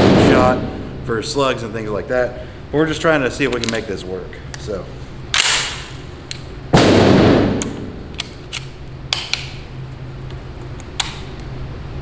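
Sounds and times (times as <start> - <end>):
loud gunshot bang: 0.0 - 0.8, 6.8 - 7.9.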